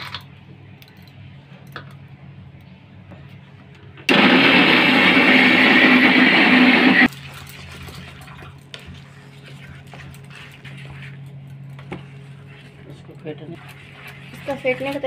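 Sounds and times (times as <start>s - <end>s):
electric mixer grinder running: 4.1s - 7.1s.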